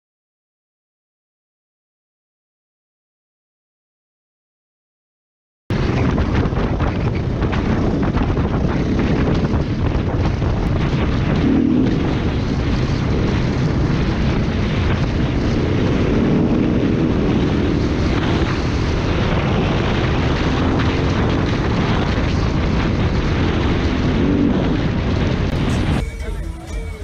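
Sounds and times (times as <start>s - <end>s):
wind rushing over microphone: 5.7s - 26.1s
motorcycle engine running: 5.8s - 27.0s.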